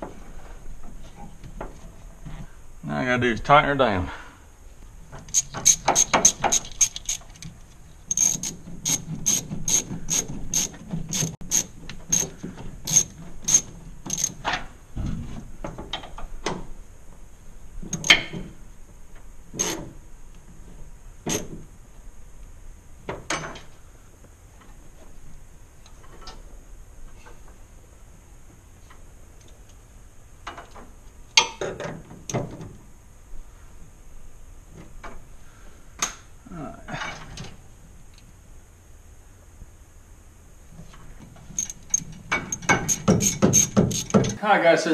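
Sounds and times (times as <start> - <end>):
ratchet wrench clicking: 5.3 - 7.5, 8.1 - 14.4, 41.6 - 44.4.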